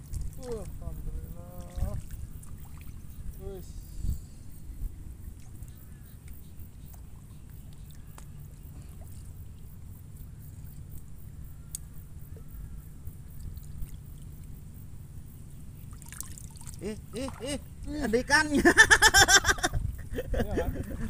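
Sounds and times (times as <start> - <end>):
soft water movement: 0.0 - 18.4
steady low rumble: 0.0 - 21.0
faint short clicks: 11.7 - 12.0.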